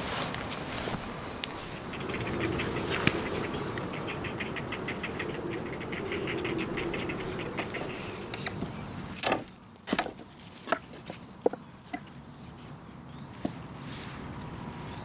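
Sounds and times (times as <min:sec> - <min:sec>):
steady low hum: 0:01.0 - 0:09.2
rapid even chirping: 0:01.1 - 0:09.2.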